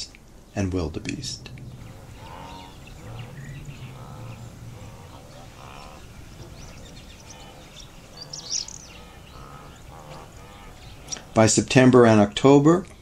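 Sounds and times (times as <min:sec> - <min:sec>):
faint animal calls: 0:00.9 - 0:11.6
high bird chirp: 0:01.0 - 0:11.4.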